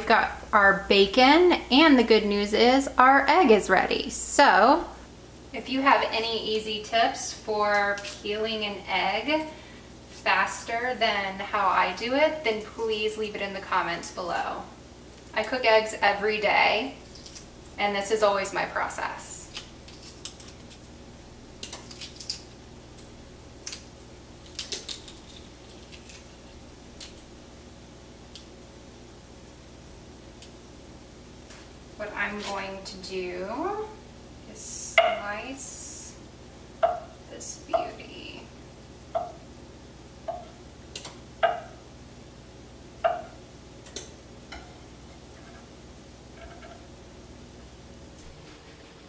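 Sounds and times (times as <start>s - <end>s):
eggshell crackling as peeled: 17.0s - 17.8s, 19.4s - 27.4s.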